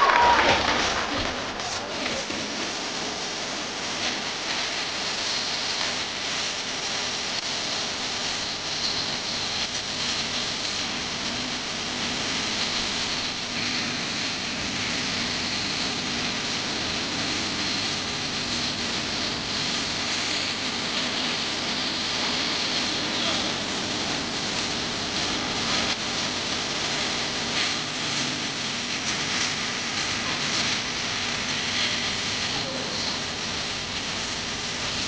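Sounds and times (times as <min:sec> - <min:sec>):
crowd noise: 0:00.0 - 0:03.6.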